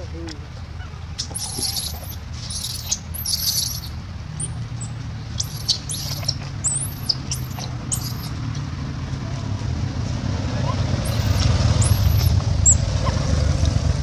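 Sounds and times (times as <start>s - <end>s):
infant monkey squealing: 0.8s - 8.4s, 10.6s - 13.2s.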